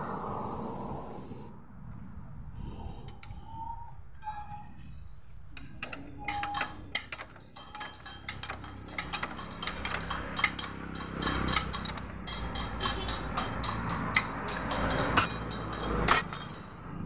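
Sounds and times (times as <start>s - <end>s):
chain and sprocket clicking: 5.6s - 16.8s.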